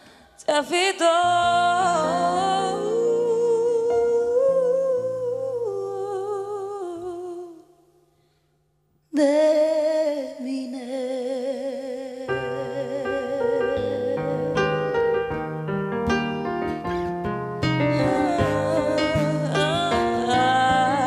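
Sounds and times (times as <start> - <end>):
woman singing: 0.0 - 7.8, 9.1 - 15.1, 17.8 - 21.0
guitar: 1.2 - 6.0, 12.3 - 21.0
soft accompaniment: 12.3 - 21.0
keyboard playing: 13.6 - 20.6.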